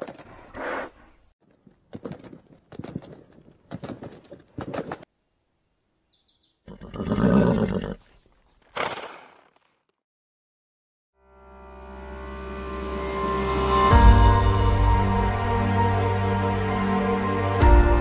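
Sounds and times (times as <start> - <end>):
horse hooves thudding: 1.4 - 5.1
horse whinnying: 6.6 - 8.1.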